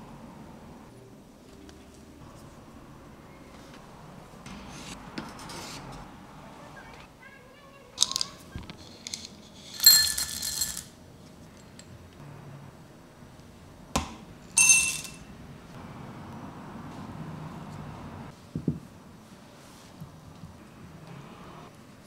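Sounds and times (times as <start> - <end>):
metal kitchenware clinking: 8.9 - 10.9, 14.5 - 15.2.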